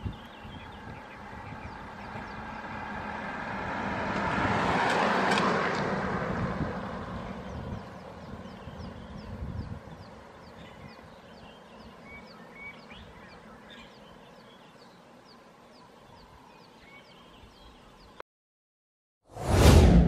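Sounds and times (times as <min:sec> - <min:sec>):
low rumble: 0:19.3 - 0:20.0.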